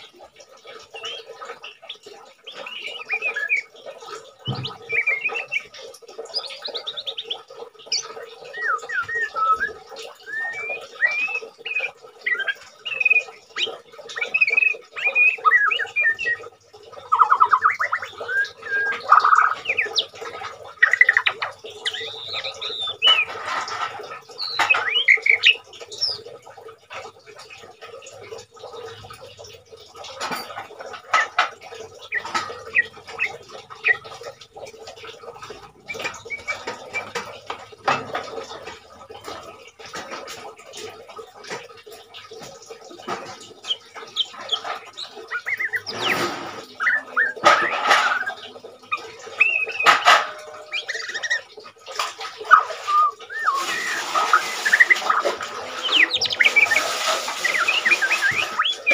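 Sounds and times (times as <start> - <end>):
bird singing whistles and chirps: 0.9 - 3.7, 4.4 - 16.5, 17.1 - 20.2, 20.8 - 23.4, 24.4 - 26.3, 43.6 - 48.5, 49.4 - 50.0, 50.6 - 51.5, 52.5 - 58.9.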